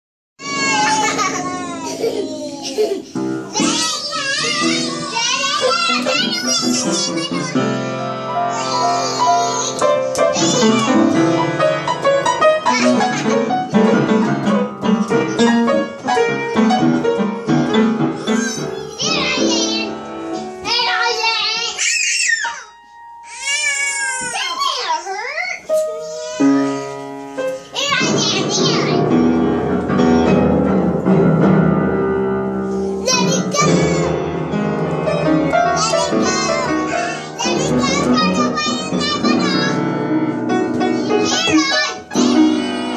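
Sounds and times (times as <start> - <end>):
children calling out: 0.4 - 11.9, 12.6 - 14.1, 17.6 - 20.0, 20.6 - 27.0, 33.0 - 34.2, 35.6 - 39.9, 40.9 - 42.9
piano keys banged at random: 3.0 - 21.6, 25.7 - 42.9.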